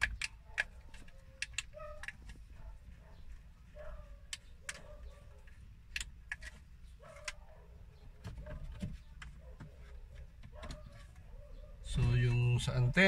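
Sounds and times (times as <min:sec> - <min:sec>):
plastic clicks and taps: 0:00.0 - 0:02.4.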